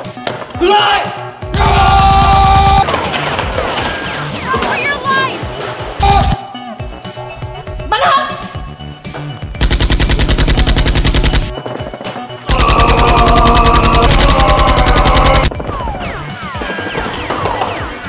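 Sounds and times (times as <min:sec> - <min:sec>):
automatic gunfire: 0:09.6 - 0:11.6, 0:12.5 - 0:15.5.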